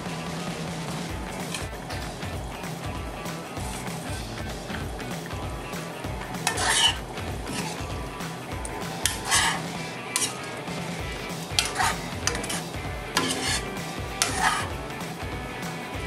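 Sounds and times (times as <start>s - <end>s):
background music with steady beat: 0.0s - 16.0s
spatula scraping a metal pan: 1.4s - 2.4s, 6.3s - 14.8s.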